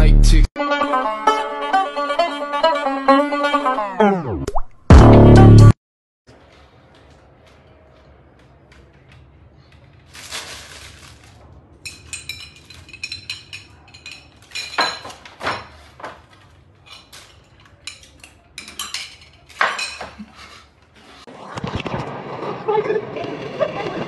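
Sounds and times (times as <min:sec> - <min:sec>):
hard objects clinking together: 0:10.0 - 0:20.7.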